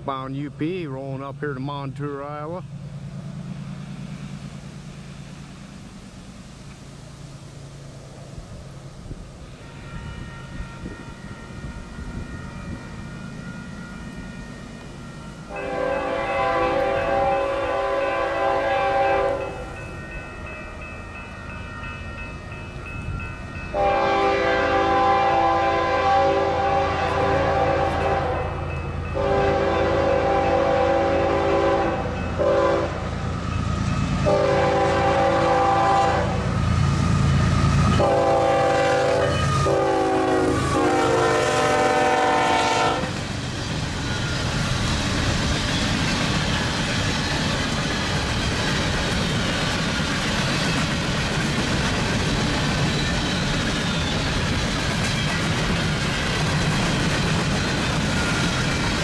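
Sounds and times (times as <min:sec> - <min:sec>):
locomotive rumble: 0:00.0 - 0:59.0
locomotive air horn blasts: 0:15.5 - 0:19.6, 0:23.7 - 0:28.6, 0:29.2 - 0:33.1, 0:34.2 - 0:36.5, 0:37.9 - 0:43.2.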